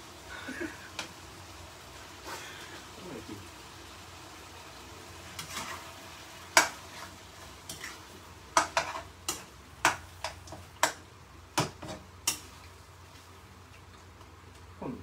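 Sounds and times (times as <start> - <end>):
utensil scraping frying pan: 5.2 - 11.0, 11.6 - 12.8.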